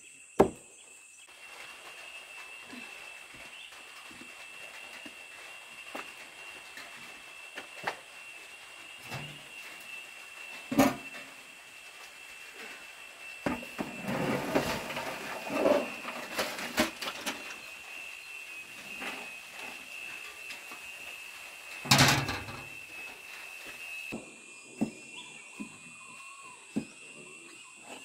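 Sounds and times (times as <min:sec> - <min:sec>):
knocks and clattering of objects: 0:21.8 - 0:22.8.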